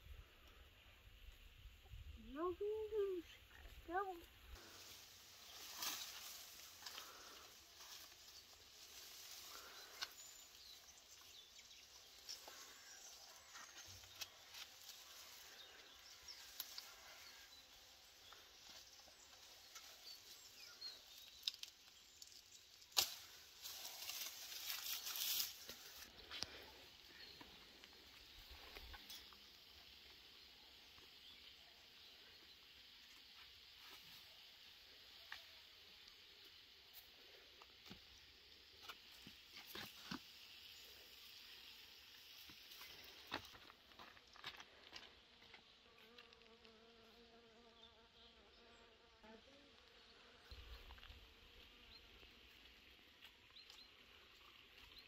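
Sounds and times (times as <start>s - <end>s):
outdoor insect hum: 0.0s - 55.0s
leaves and twigs rustling: 2.4s - 31.4s, 32.9s - 46.6s
sharp snap of branch: 22.9s - 25.0s
flying insect buzzing: 45.9s - 52.8s.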